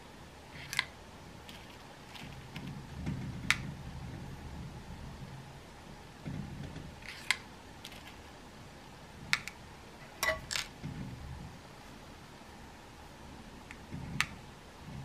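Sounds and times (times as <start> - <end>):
soft handling rustle: 1.4 - 2.8.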